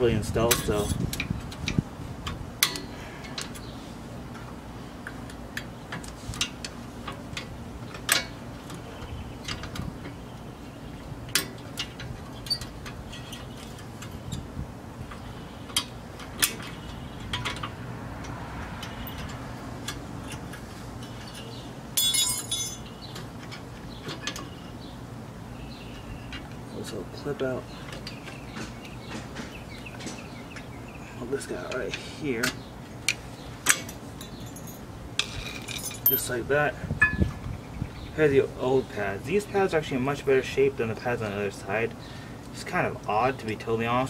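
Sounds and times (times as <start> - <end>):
metallic rattle-scrape: 33.7 - 36.3.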